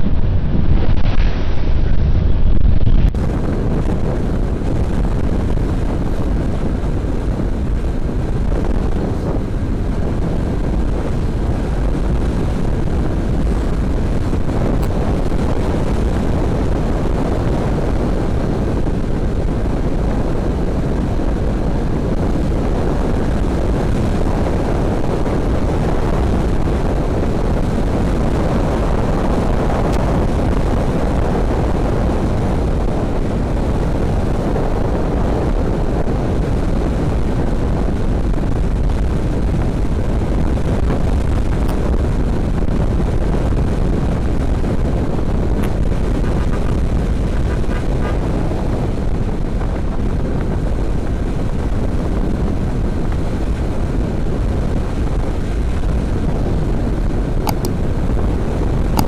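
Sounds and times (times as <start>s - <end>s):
motorcycle road noise: 0.0s - 59.0s
wind rush: 0.0s - 59.0s.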